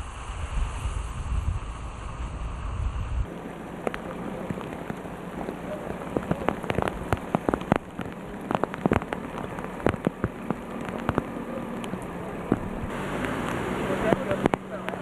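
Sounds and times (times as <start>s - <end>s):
floodwater rushing: 0.0s - 15.0s
sharp crackles and taps: 3.3s - 15.0s.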